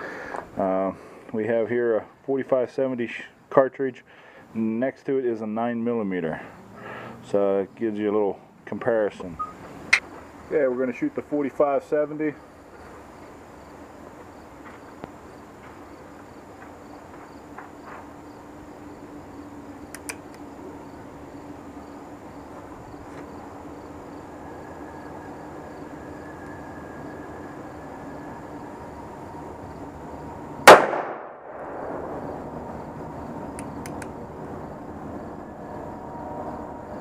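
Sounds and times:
gunshot: 0:30.6 - 0:32.2
gunshot echo: 0:30.6 - 0:32.3.

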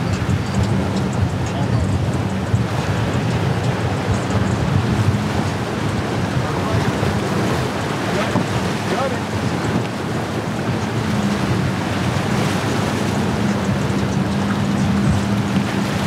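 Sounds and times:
outboard motor hum: 0:00.0 - 0:16.0
waves breaking: 0:00.0 - 0:16.0
wind rushing over microphone: 0:00.0 - 0:16.0.

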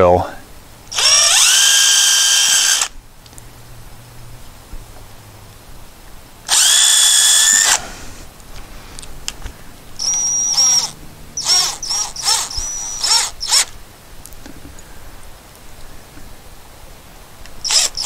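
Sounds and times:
cordless drill drilling into wood: 0:00.9 - 0:02.9, 0:06.5 - 0:08.0, 0:10.0 - 0:13.8, 0:17.6 - 0:18.0
drill driving screws in short bursts: 0:00.9 - 0:02.9, 0:06.5 - 0:07.9, 0:10.0 - 0:13.7, 0:17.6 - 0:18.0.

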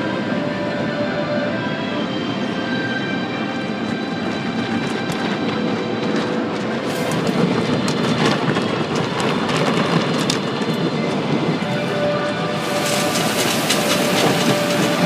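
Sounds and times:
car wash water and machinery rumble: 0:11.7 - 0:15.0.

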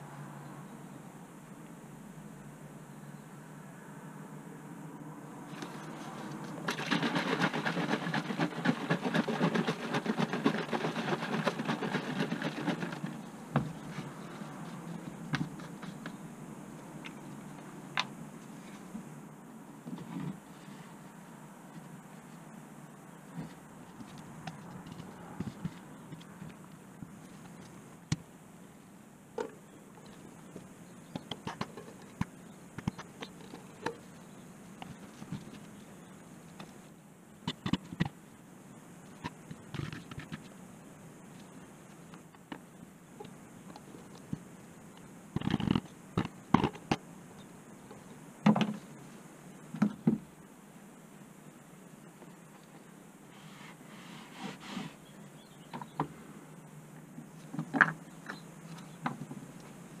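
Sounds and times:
cloth wiping wooden bench: 0:53.4 - 0:55.0.

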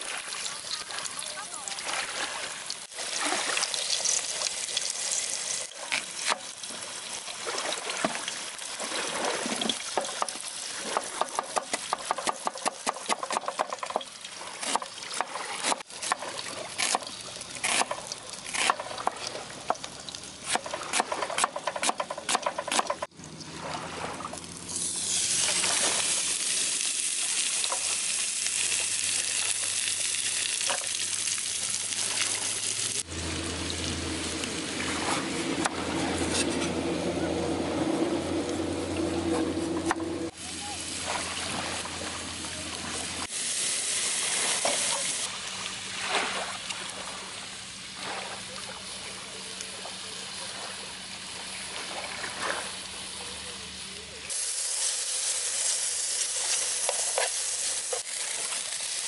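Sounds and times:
onions frying hiss: 0:02.6 - 0:07.3, 0:09.7 - 0:21.0, 0:24.7 - 0:34.8, 0:43.2 - 0:45.3, 0:52.8 - 0:59.0
patty sizzling in a pan: 0:24.7 - 0:34.5, 0:54.3 - 0:59.0.

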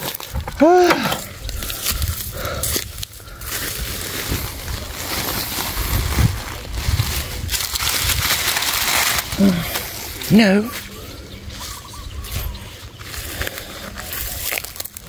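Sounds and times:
plastic sack rustling: 0:00.0 - 0:15.0.

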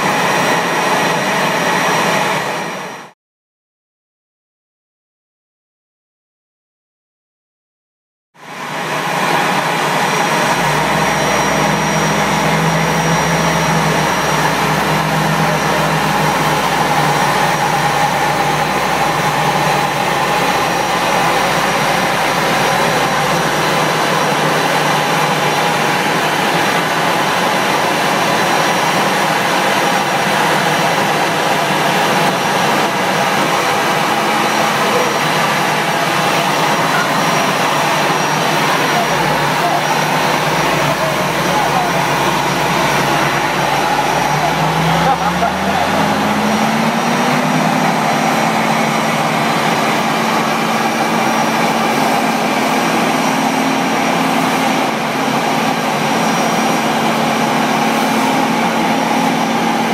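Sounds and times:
jet engines running loudly: 0:00.0 - 0:03.1, 0:08.4 - 0:59.9
thin high whine: 0:08.5 - 0:59.9
low hum: 0:09.0 - 0:27.5.

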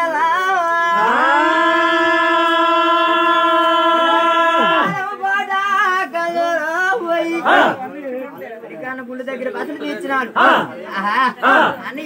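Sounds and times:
man singing unaccompanied: 0:00.0 - 0:07.9.

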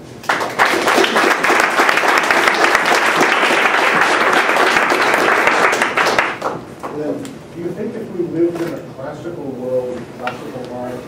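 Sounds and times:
audience applauding: 0:00.2 - 0:06.7.

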